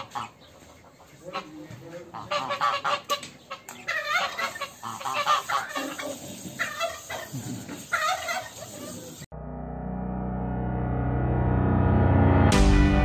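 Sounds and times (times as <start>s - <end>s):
geese honking: 0.0s - 9.2s.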